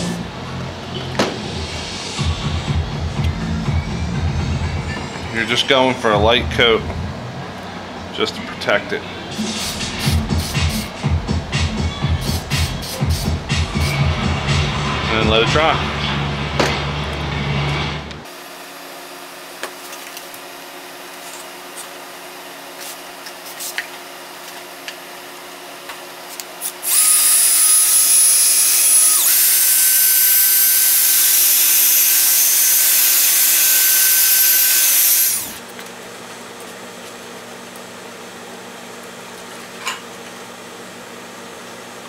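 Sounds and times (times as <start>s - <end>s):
cordless drill motor whine: 26.6s - 35.6s.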